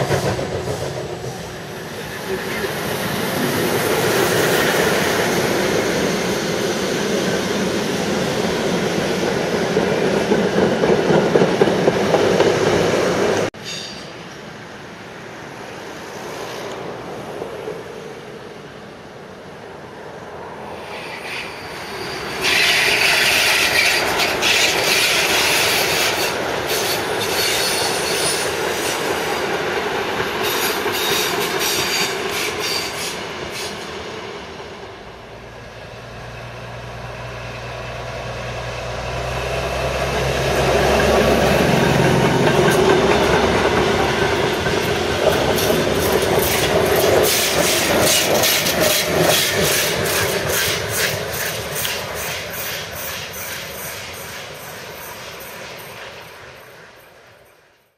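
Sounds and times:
train wheels clattering over rail joints: 0:00.0 - 0:02.8, 0:40.7 - 0:56.1
high-pitched wheel squeal: 0:20.9 - 0:29.0.

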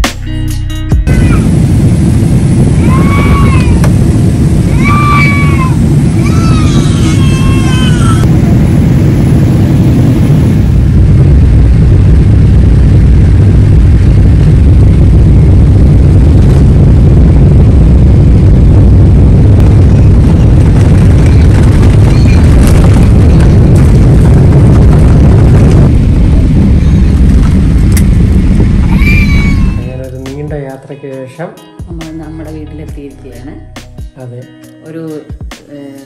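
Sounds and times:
moving vehicle rumble: 0:01.1 - 0:30.2
cat meowing: 0:04.7 - 0:08.2, 0:28.9 - 0:30.0.

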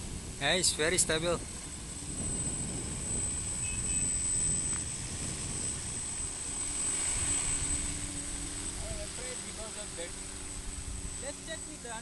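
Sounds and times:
drone propellers buzzing: 0:00.0 - 0:12.0.

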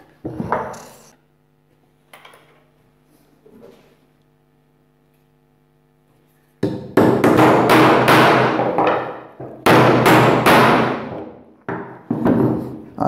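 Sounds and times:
hammer hitting nail into wood: 0:06.6 - 0:12.6.

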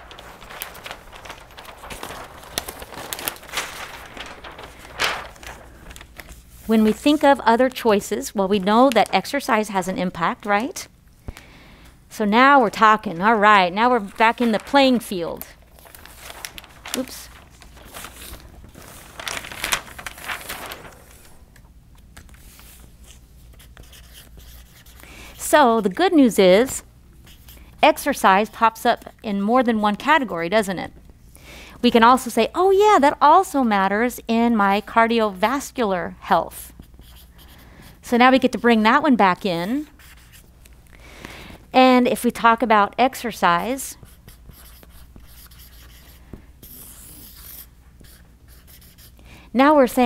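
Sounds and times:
paper swishes: 0:00.0 - 0:07.3, 0:15.7 - 0:21.6
paper rustling and crackling: 0:00.0 - 0:07.4, 0:13.8 - 0:25.0.

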